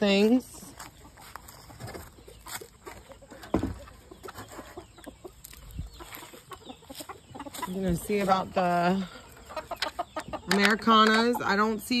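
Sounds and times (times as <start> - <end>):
chickens clucking: 0.0 - 12.0
footsteps through grass: 0.1 - 3.4, 5.4 - 9.0.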